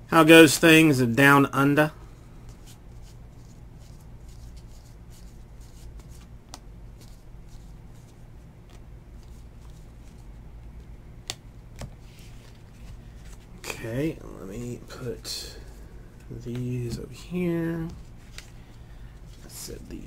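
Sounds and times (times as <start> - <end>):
cards flipping: 2.5 - 13.5, 17.8 - 19.5
cards tapped onto pile: 11.2 - 12.0.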